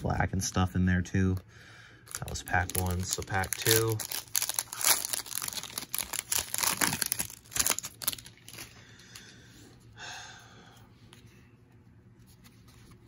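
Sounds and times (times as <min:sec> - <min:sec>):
cards rustling: 0:02.1 - 0:08.8
foil wrapper crinkling and tearing: 0:02.1 - 0:08.8.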